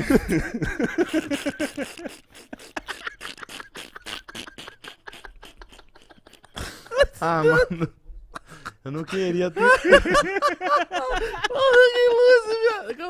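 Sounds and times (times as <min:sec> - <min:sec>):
men laughing hard: 0:00.0 - 0:12.8.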